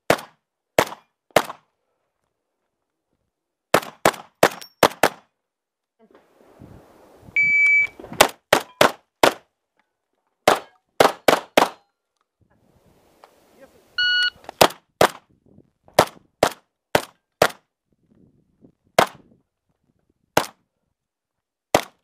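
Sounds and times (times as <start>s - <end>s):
shotgun shots: 0.1s - 1.6s, 3.7s - 5.2s, 10.4s - 11.8s
short beep: 7.4s - 8.0s, 14.0s - 14.4s.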